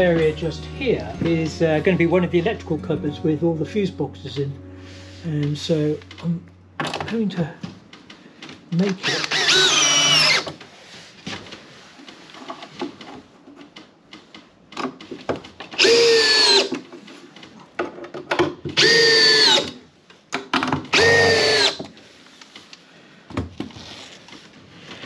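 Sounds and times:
cordless drill motor whine: 9.0 - 10.5, 15.8 - 16.7, 18.8 - 19.7, 20.9 - 21.8.

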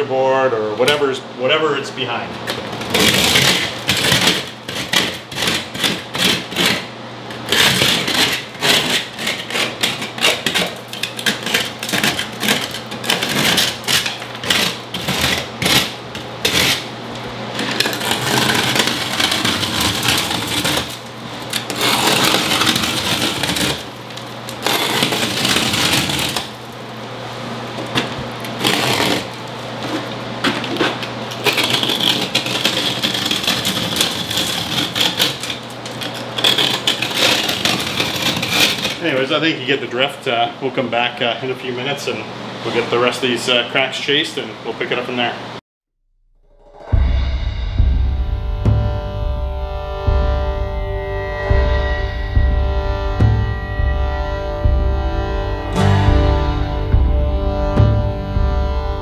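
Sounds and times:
knife scraping plaster: 2.9 - 6.8, 7.5 - 16.9, 17.6 - 23.9, 24.5 - 26.6, 28.6 - 29.4, 30.7 - 39.1.

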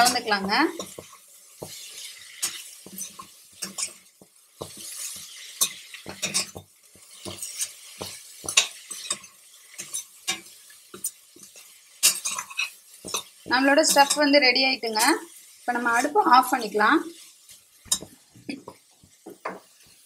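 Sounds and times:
utensil scraping and knocking pan: 0.0 - 14.2
light sizzle: 0.0 - 20.0.

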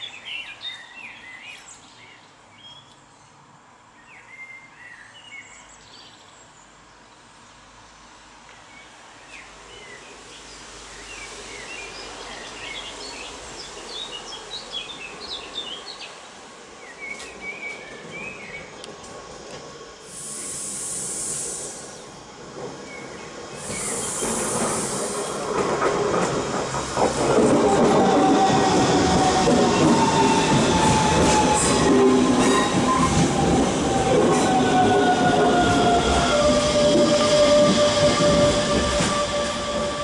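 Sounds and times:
high hiss: 9.3 - 16.8, 19.3 - 40.0
electric train running noise: 19.0 - 40.0.

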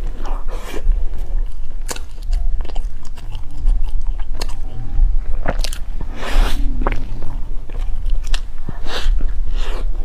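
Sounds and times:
chewing crisp bread: 0.0 - 10.0
crunchy bite: 1.7 - 9.8.

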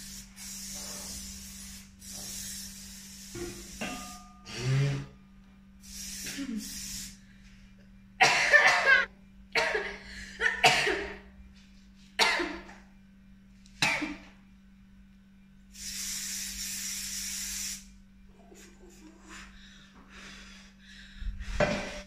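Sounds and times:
spray can hissing: 0.0 - 4.2, 5.8 - 7.2, 15.7 - 17.9
person coughing: 8.2 - 11.3, 12.2 - 12.7, 13.8 - 14.3.

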